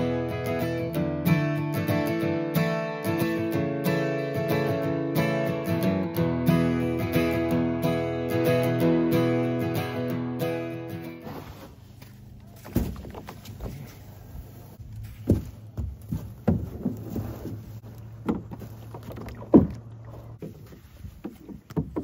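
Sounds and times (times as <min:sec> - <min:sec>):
knocks against canoe hull: 0:15.2 - 0:17.6, 0:18.2 - 0:22.0.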